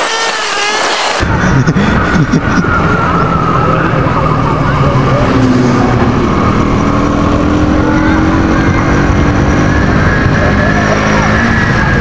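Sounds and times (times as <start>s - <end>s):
motorcycle engine running: 5.8s - 11.3s.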